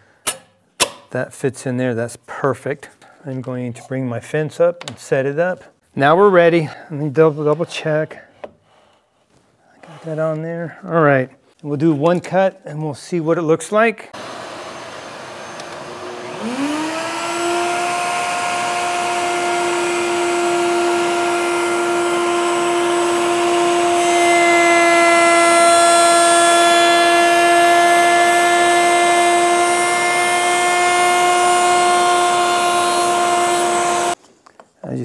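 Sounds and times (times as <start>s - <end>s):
router bit cutting wood: 14.2s - 34.2s
router whine: 14.2s - 34.2s.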